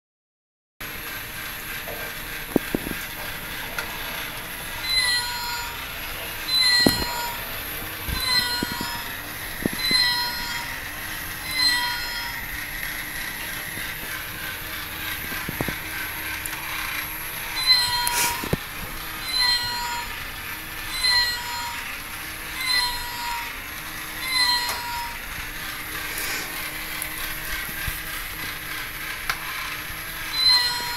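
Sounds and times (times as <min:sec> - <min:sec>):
toy gear motor whirring: 0:00.8 - 0:30.9
electronic toy meow: 0:04.7 - 0:12.7, 0:17.4 - 0:18.5, 0:19.1 - 0:25.4, 0:30.1 - 0:30.9.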